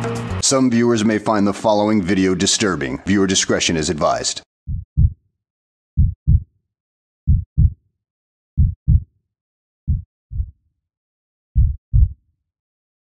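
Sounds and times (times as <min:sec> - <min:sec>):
heartbeat thumps: 0:04.7 - 0:05.2, 0:06.0 - 0:06.5, 0:07.3 - 0:07.8, 0:08.6 - 0:09.1, 0:09.9 - 0:10.6, 0:11.6 - 0:12.2.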